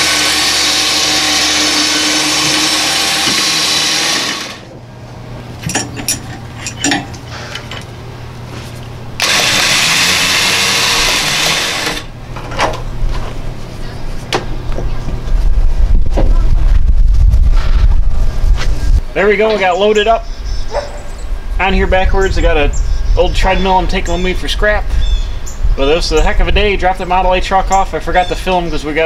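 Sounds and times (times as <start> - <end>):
electric winch motor running: 0.0 - 4.8, 9.1 - 12.2
knocks and clanks: 1.3 - 4.6, 5.6 - 7.9, 10.8 - 13.3.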